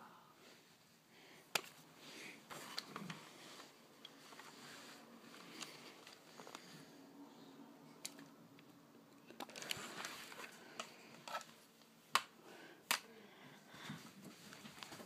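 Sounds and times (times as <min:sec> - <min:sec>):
faint handling rustling: 0:01.6 - 0:06.9, 0:09.3 - 0:12.0.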